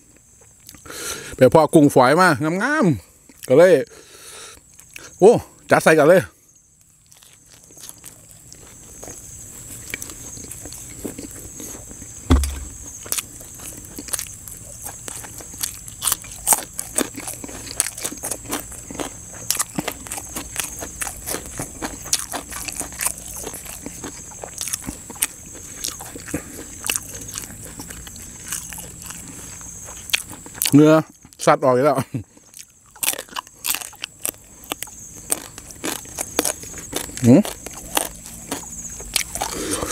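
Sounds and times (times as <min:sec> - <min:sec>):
person chewing crunchy food: 0:00.0 - 0:01.3, 0:03.2 - 0:03.6, 0:06.8 - 0:31.4, 0:32.2 - 0:39.9
low thump: 0:12.3 - 0:12.9
wet mouth clicks: 0:39.2 - 0:39.9.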